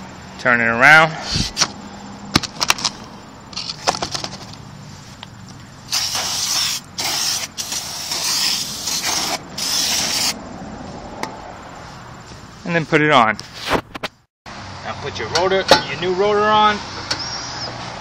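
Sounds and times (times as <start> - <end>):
aerosol spray hissing: 5.9 - 10.4.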